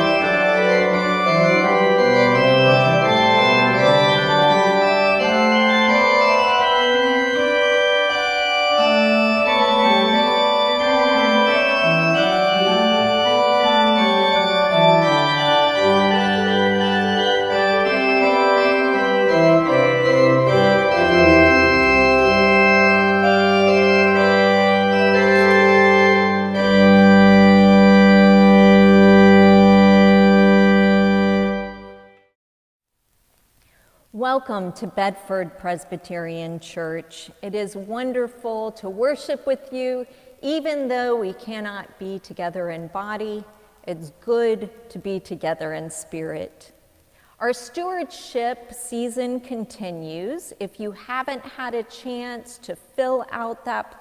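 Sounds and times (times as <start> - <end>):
organ music: 0.0 - 32.4.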